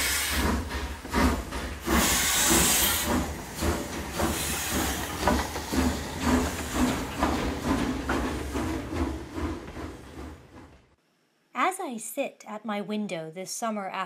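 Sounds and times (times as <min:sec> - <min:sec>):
steam hiss: 0:00.0 - 0:07.1
locomotive exhaust chuffs: 0:00.0 - 0:11.0.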